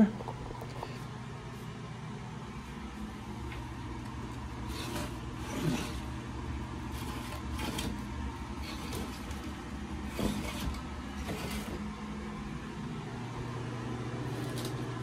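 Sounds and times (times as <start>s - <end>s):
basket drawer rustling and scraping: 4.5s - 12.0s.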